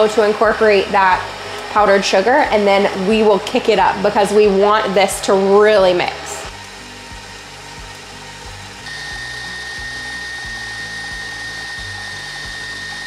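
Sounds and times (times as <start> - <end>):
high whine: 0.1 - 13.0
stand mixer whisking: 7.9 - 13.0.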